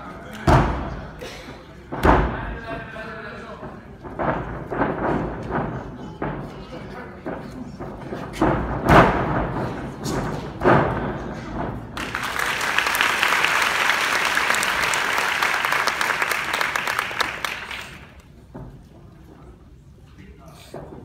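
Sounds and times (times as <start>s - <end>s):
loud thuds: 1.9s - 2.6s, 8.2s - 12.0s
audience applause: 12.0s - 18.2s.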